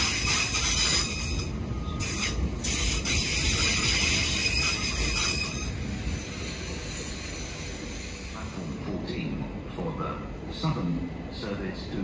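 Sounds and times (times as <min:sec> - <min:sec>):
wheels squealing on rails: 0:00.0 - 0:09.0
passenger train rolling past: 0:00.0 - 0:12.0.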